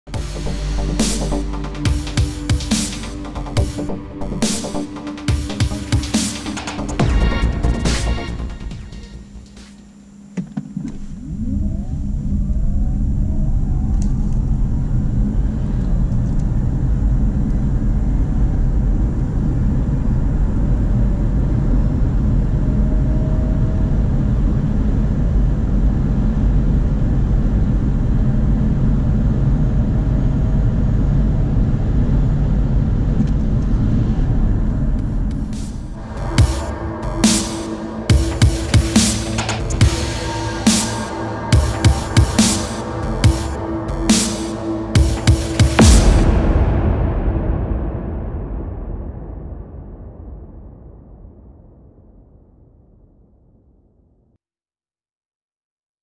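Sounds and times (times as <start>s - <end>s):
road and wind noise: 14.0s - 36.0s.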